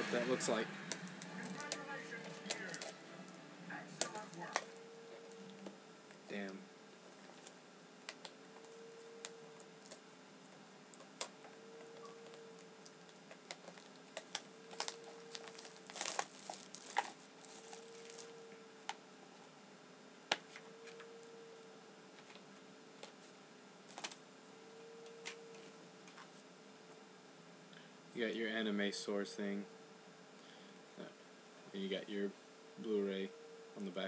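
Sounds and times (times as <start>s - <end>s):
packaging crinkling: 0.9s - 3.0s, 12.2s - 18.4s.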